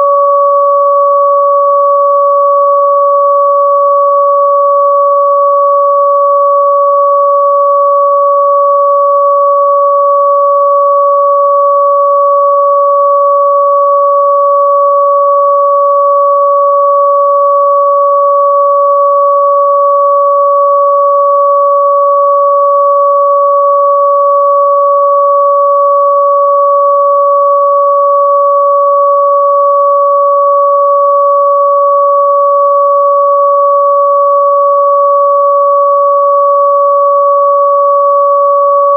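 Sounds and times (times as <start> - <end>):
steady electronic sine tones: 0.0 - 38.9.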